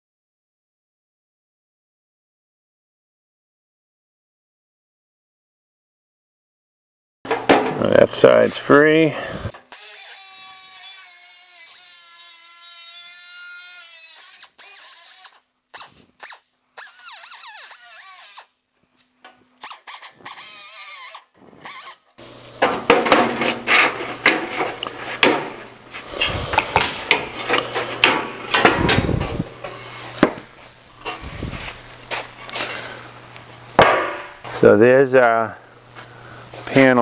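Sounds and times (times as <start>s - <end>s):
cutoff wheel grinding metal: 9.2s - 16.0s, 19.5s - 32.9s.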